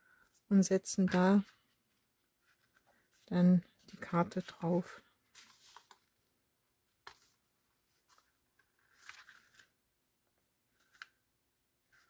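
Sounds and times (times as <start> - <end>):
paper card rustling: 1.1 - 6.2, 7.0 - 9.8, 10.7 - 11.2.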